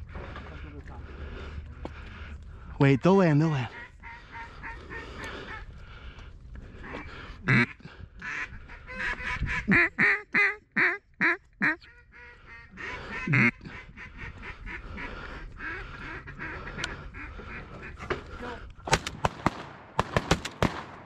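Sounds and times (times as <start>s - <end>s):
duck call quacks: 3.5s - 5.6s, 6.8s - 18.0s.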